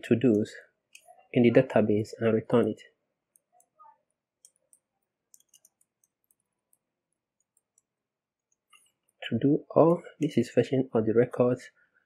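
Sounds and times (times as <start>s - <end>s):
keyboard typing clicks: 4.4s - 6.8s.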